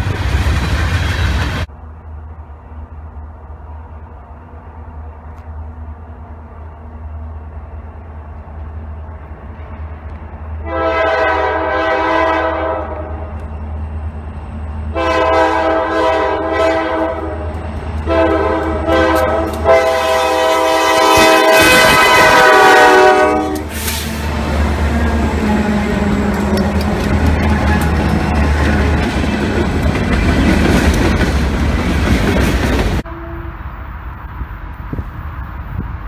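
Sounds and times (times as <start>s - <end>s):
diesel engines rumbling: 0.0s - 36.0s
locomotive air horn blasts: 10.6s - 13.4s, 14.9s - 24.4s, 33.0s - 33.7s.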